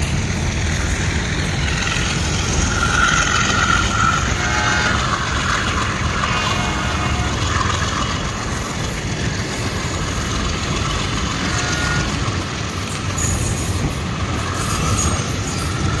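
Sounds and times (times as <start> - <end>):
train clatter over rail joints: 0.0 - 16.0
train wheels rumbling on rails: 0.0 - 16.0.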